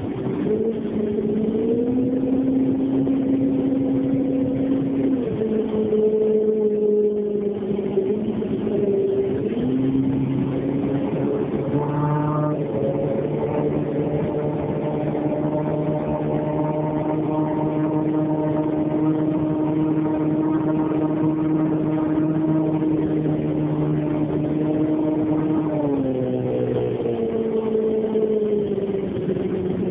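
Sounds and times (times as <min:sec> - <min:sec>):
boat motor humming: 0:00.0 - 0:29.9
wind: 0:00.0 - 0:29.9.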